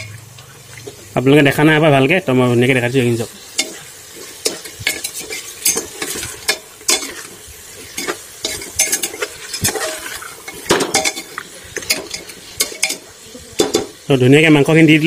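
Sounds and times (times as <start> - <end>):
meat sizzling in oil: 0.0 - 15.0
ladle scraping and knocking pot: 3.5 - 14.0.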